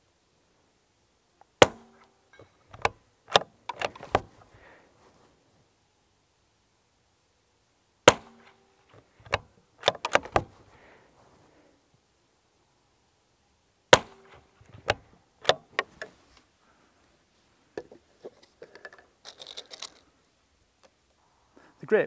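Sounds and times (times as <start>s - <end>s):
rifle shots: 1.6s - 2.0s, 8.1s - 8.6s, 13.9s - 14.4s
rifle bolt metallic clicks: 1.6s - 4.3s, 9.2s - 10.5s, 14.8s - 16.1s.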